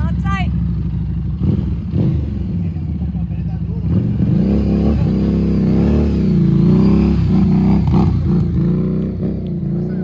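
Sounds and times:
motorcycle engine revving: 0.0s - 10.0s.

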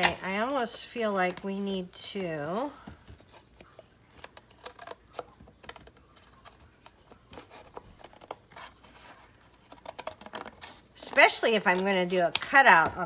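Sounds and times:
paper packaging rustling: 3.2s - 13.0s.

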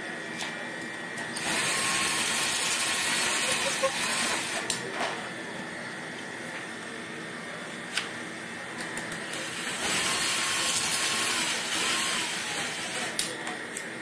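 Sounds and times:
steady background hum: 0.0s - 14.0s
cordless drill motor whine: 1.4s - 4.7s, 9.4s - 13.2s.

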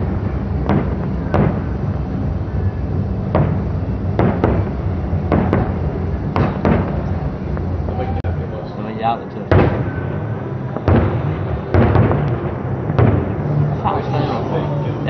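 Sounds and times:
firework shells bursting: 0.0s - 1.9s, 3.3s - 7.8s, 10.7s - 13.6s
low rumble: 0.0s - 15.0s.

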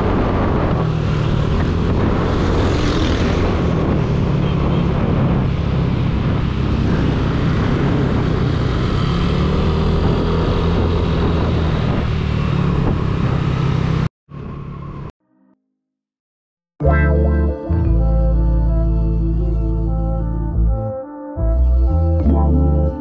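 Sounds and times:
wind noise on microphone: 0.0s - 13.6s
motorcycle running: 0.0s - 15.1s.

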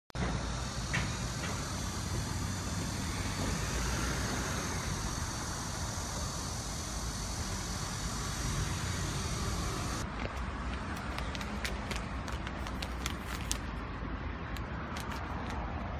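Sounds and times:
hiss: 0.2s - 10.0s
distant road traffic rumble: 0.2s - 15.9s.

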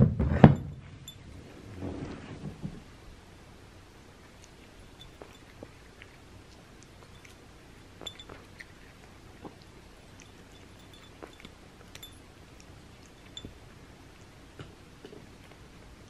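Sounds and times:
kibble clinking against dish: 4.8s - 5.8s, 7.0s - 8.7s, 9.4s - 12.3s.

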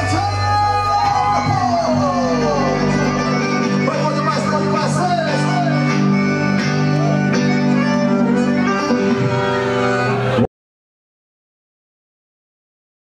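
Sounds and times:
accordion melody: 0.0s - 10.5s
electric guitar: 0.0s - 10.5s
keyboard: 0.0s - 10.5s.

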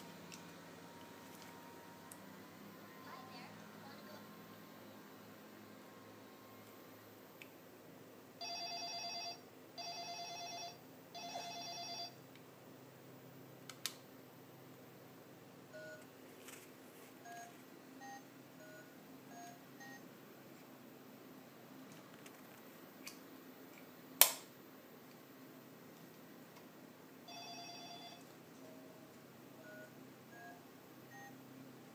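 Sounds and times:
trilling electronic ring: 27.3s - 28.2s.

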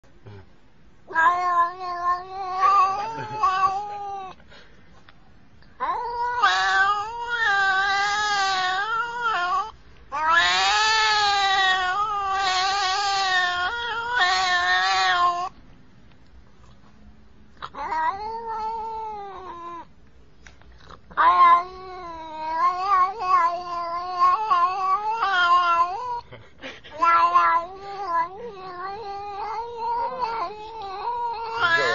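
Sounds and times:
cat yowling: 1.1s - 4.4s, 5.8s - 15.6s, 17.6s - 19.9s, 21.1s - 26.3s, 27.0s - 31.9s.

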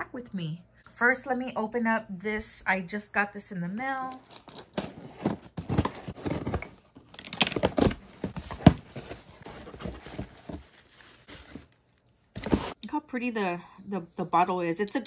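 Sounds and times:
packaging rustling: 4.1s - 12.8s.

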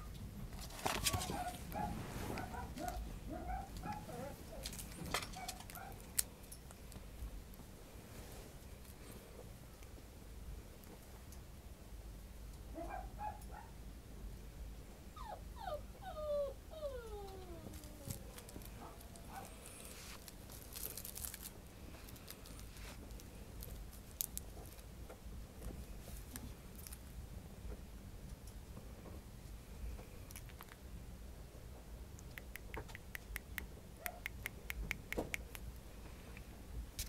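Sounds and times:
puppy yipping and whining: 1.0s - 6.0s, 15.2s - 19.6s
faint clicks and rustling: 17.3s - 29.2s.

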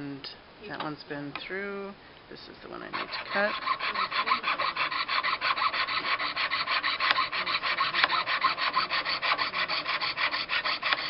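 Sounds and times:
jeweler's saw cutting metal: 2.9s - 11.0s.

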